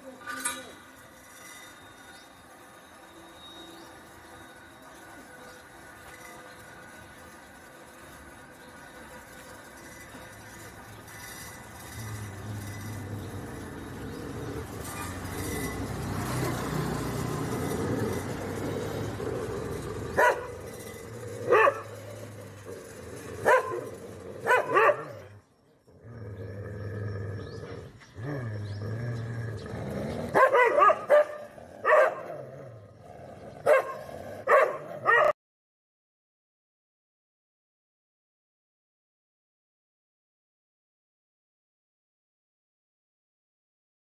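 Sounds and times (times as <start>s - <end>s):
dog barking: 20.2s - 20.5s, 21.5s - 21.9s, 23.4s - 23.8s, 24.4s - 25.2s, 30.4s - 32.3s, 33.6s - 35.4s.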